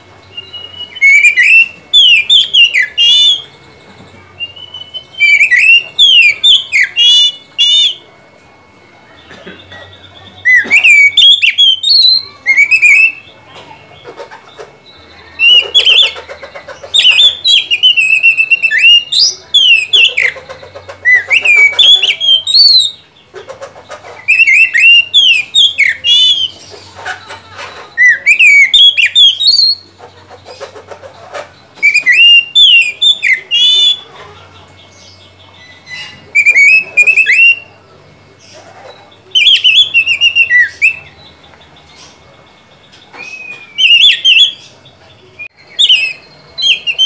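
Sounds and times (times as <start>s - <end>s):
bird singing whistled song: 0.2s - 8.1s, 9.7s - 13.4s, 16.9s - 23.2s, 24.2s - 26.7s, 27.9s - 29.9s, 31.7s - 34.2s, 34.8s - 37.8s, 39.1s - 47.0s.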